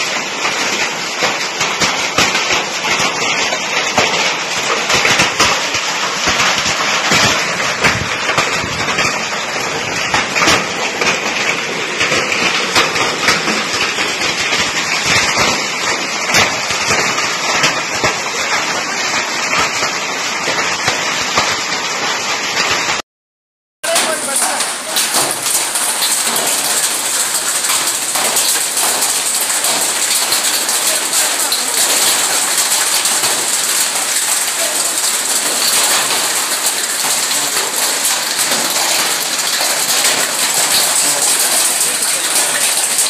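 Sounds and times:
hail clattering on metal roof: 0:00.0 - 0:23.0, 0:23.8 - 0:43.0
heavy rain rushing: 0:00.0 - 0:23.0, 0:23.8 - 0:43.0.

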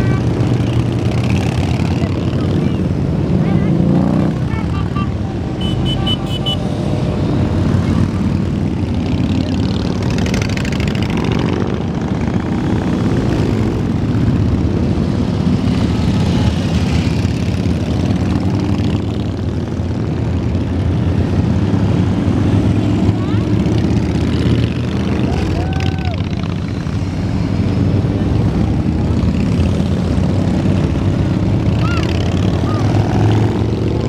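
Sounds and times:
motorcycles riding past: 0:00.0 - 0:34.0.

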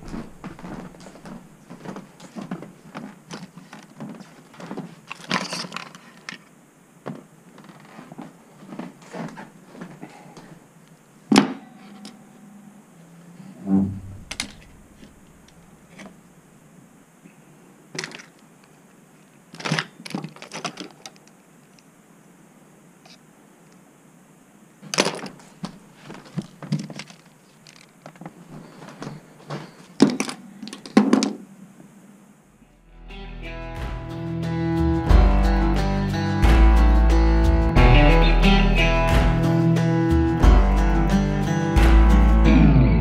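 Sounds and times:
low steady hum: 0:00.0 - 0:04.2, 0:08.8 - 0:19.5
small objects handled on a table: 0:00.0 - 0:06.5, 0:17.9 - 0:18.8, 0:24.8 - 0:31.4.

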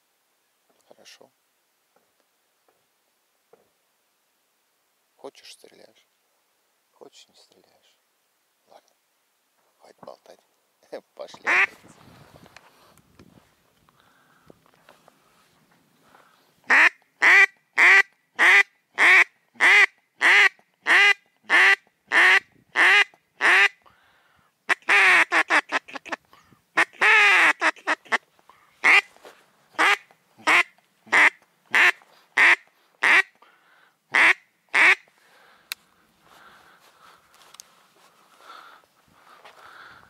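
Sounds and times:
duck quacking: 0:11.4 - 0:11.8, 0:16.7 - 0:23.8, 0:24.7 - 0:26.2, 0:26.8 - 0:28.2, 0:28.8 - 0:29.1, 0:29.8 - 0:33.4, 0:34.1 - 0:35.1.

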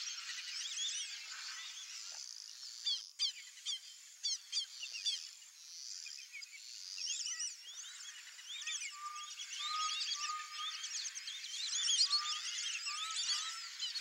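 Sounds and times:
wetland birds whistling: 0:08.6 - 0:14.0.

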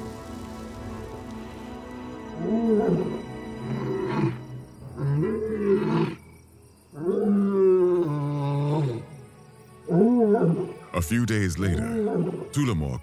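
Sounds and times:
soft music score: 0:00.0 - 0:13.0
lion roaring: 0:05.0 - 0:06.2, 0:07.0 - 0:09.1, 0:11.9 - 0:12.4.

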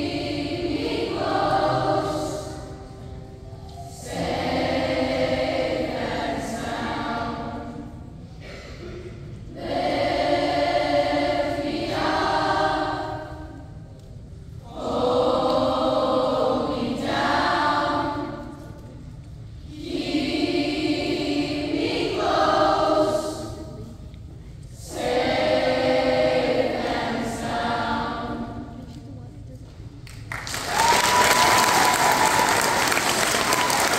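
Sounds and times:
children's choir singing: 0:00.0 - 0:13.8, 0:14.6 - 0:18.9, 0:19.5 - 0:24.0, 0:24.8 - 0:29.0.

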